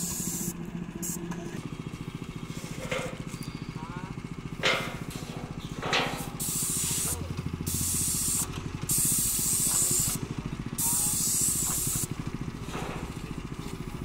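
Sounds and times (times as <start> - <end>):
pressurised spray hissing: 0.0 - 1.2, 6.3 - 10.2, 10.8 - 12.1
small engine running: 0.0 - 14.0.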